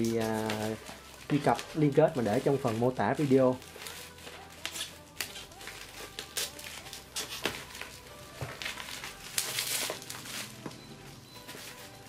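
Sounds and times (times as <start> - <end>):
sharp bubble wrap crackles: 0.0 - 10.8, 11.4 - 12.0
bubble wrap crinkling and rustling: 0.0 - 12.0.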